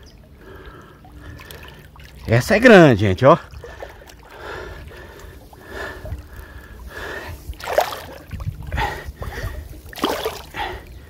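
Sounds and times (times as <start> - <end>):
man breathing hard: 0.4 - 1.9, 3.5 - 7.6, 8.6 - 11.0
low rumble on microphone: 3.4 - 11.0.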